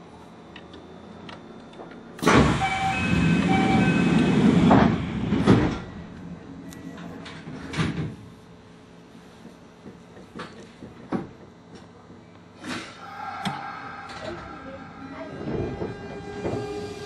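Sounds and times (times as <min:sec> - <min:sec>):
train door mechanism rushing: 0:02.2 - 0:06.2, 0:15.2 - 0:17.0.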